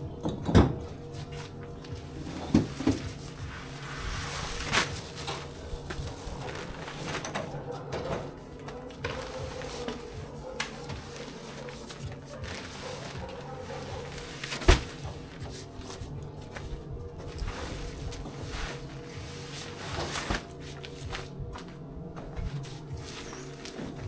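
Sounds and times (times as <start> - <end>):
faint steady hum: 0.0 - 24.0
sacks scraping and rustling: 1.1 - 24.0
heavy sacks thudding: 1.2 - 7.4, 8.3 - 24.0.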